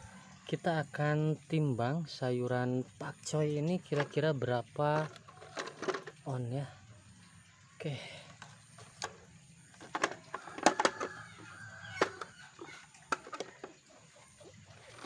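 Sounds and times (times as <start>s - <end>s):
plastic tray clicking and knocking: 4.9s - 6.2s, 9.8s - 13.8s.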